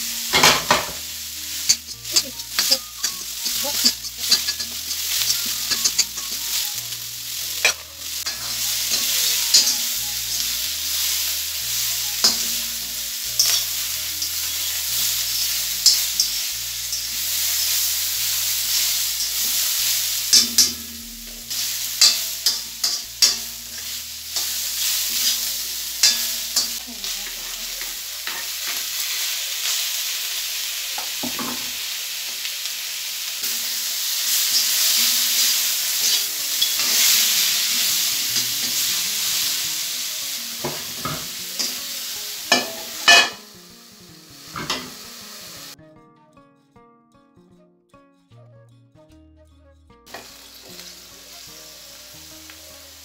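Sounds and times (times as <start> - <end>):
meat sizzling in a wok: 0.0 - 45.8, 50.1 - 53.0
metal spoon scraping a wok: 0.3 - 6.8, 7.5 - 10.6, 13.3 - 26.8.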